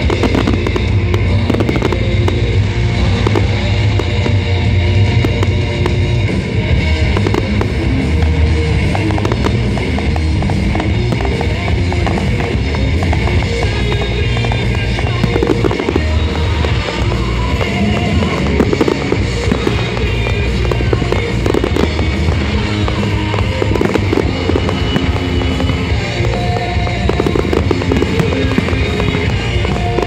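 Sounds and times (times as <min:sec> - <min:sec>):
fireworks bursting and crackling: 0:00.0 - 0:30.0
loud music: 0:00.0 - 0:30.0.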